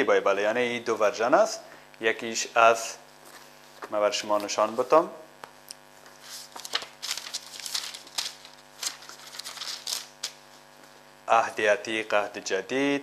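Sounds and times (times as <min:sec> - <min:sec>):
faint electrical hum: 0:00.0 - 0:13.0
paper pages rustling: 0:06.0 - 0:11.1.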